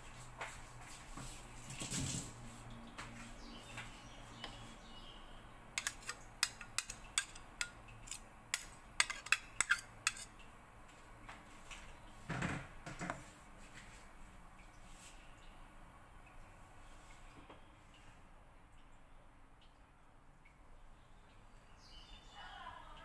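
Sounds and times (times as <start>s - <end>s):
dull metal scrape: 5.8s - 10.3s
metal kitchenware clinking: 5.8s - 10.3s.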